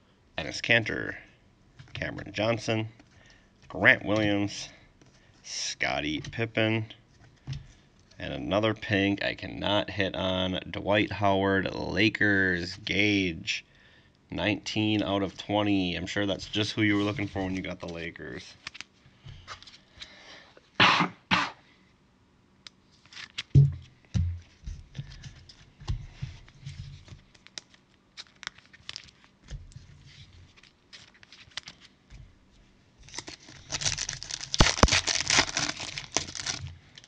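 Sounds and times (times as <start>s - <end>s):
thump: 23.5s - 24.4s
foil wrapper tearing and crinkling: 27.3s - 29.3s, 33.0s - 37.0s.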